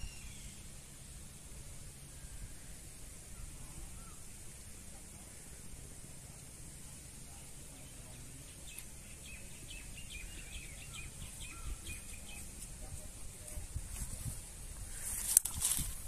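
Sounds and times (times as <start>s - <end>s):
bird chirping: 0.0s - 1.2s, 7.3s - 13.6s.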